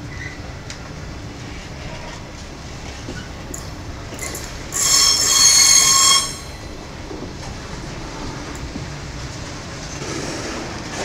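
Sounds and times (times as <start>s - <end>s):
shrill wheel squeal: 0.0s - 0.5s, 3.2s - 6.8s.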